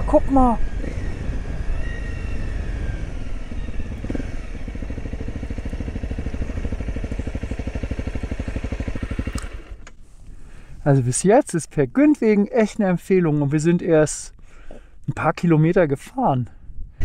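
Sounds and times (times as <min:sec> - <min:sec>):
motorcycle engine idling: 0:00.6 - 0:10.8.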